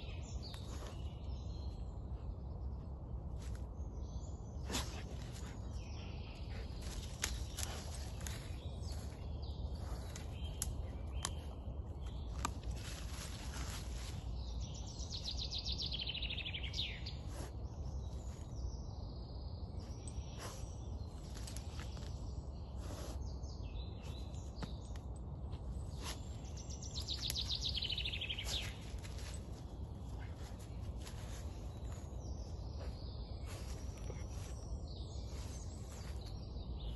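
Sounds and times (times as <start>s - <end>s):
songbird trill: 0.0s - 36.9s
dog paws digging in leaves: 12.3s - 14.4s, 27.0s - 36.3s
low outdoor rumble: 23.8s - 36.9s.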